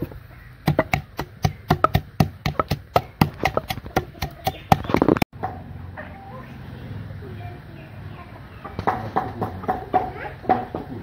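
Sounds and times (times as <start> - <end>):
pestle pounding in a mortar: 0.6 - 5.2.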